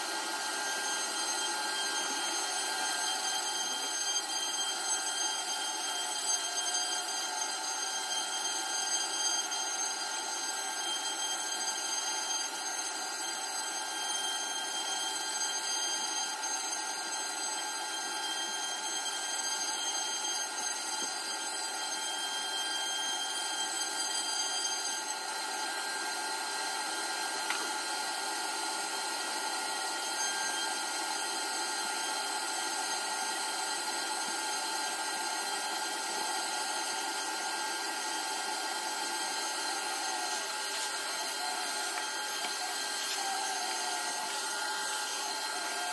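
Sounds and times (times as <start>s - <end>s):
router spindle whining: 0.0s - 45.9s
vacuum cleaner sucking: 37.0s - 45.9s.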